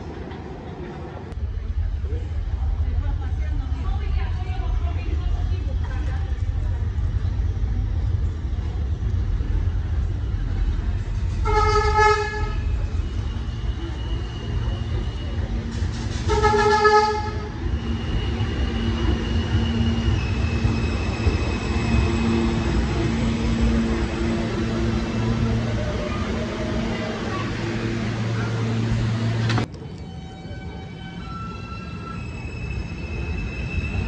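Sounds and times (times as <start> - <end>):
subway train rumbling on rails: 0.0 - 34.0
train horn blasts: 11.4 - 12.6, 16.2 - 17.6.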